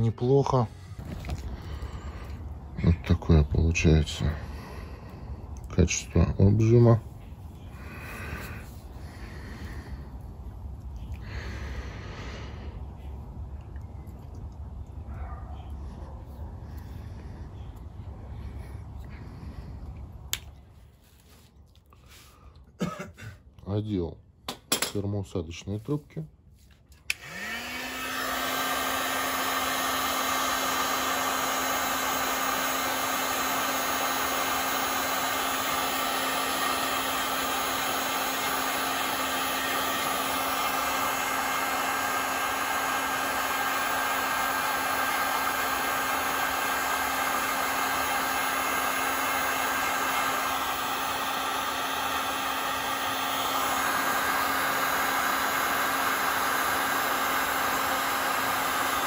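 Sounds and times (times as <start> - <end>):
heat gun blowing hot air: 7.7 - 10.2, 27.1 - 59.0.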